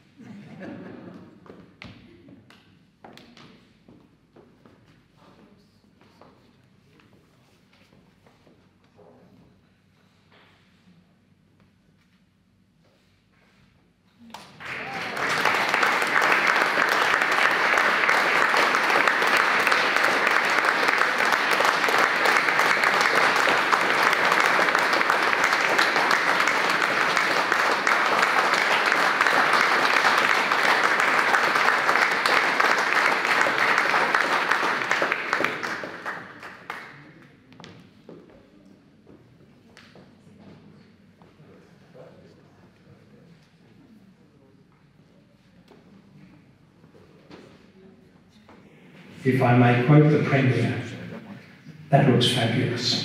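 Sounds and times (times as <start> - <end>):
audience applauding: 14.3 - 37.1.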